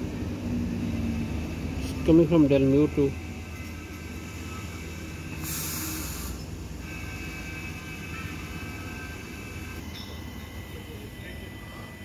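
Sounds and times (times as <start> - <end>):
high steady whine: 0.0 - 12.0
short burst of hiss: 5.4 - 6.4.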